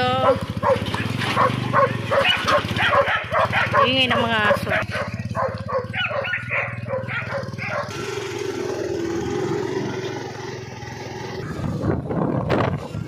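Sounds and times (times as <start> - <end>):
motorcycle engine running: 0.0 - 13.0
wind and road noise: 0.0 - 13.0
dogs barking: 0.1 - 8.1.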